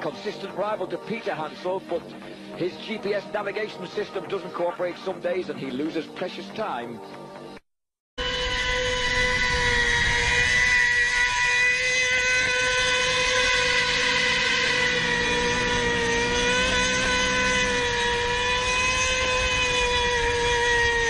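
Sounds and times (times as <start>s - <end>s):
engine at high revs: 8.2s - 21.0s
lower engine note: 8.2s - 21.0s.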